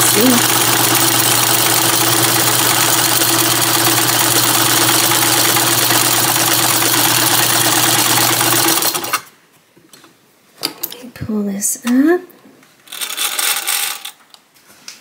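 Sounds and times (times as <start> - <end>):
sewing machine running: 0.0 - 9.3.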